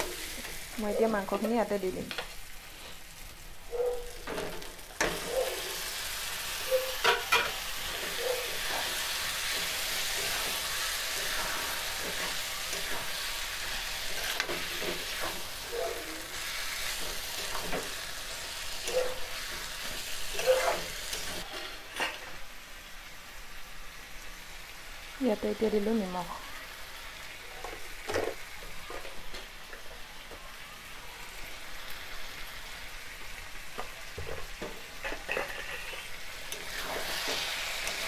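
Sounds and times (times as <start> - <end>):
meat sizzling in hot oil: 0.0 - 38.0
metal spatula scraping a pan: 6.6 - 22.4, 34.9 - 38.0.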